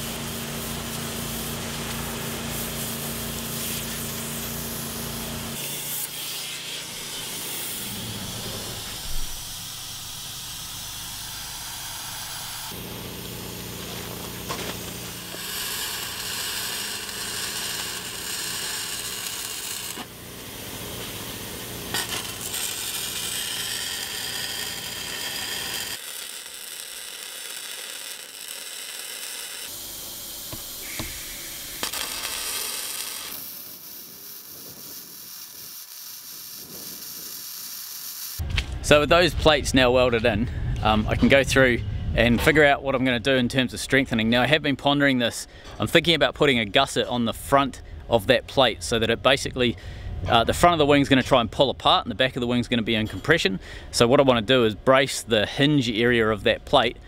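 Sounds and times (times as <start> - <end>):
abrasive blasting on steel: 0.0 - 38.4
welding on steel plate: 0.0 - 38.5.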